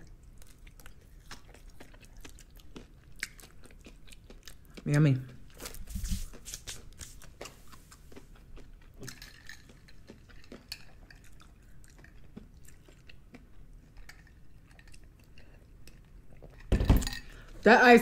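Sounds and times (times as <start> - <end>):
faint chewing: 0.0 - 17.6.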